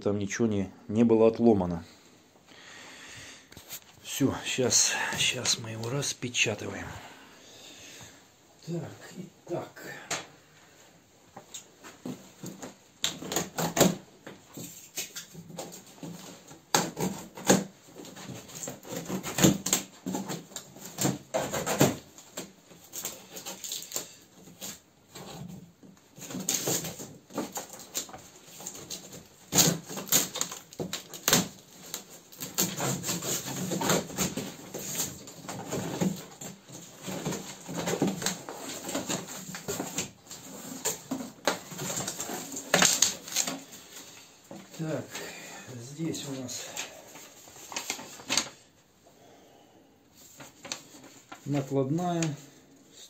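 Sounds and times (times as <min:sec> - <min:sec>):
plastic strapping pulled off: 0:11.5 - 0:45.4
taped cardboard flaps torn open: 0:26.3 - 0:35.3.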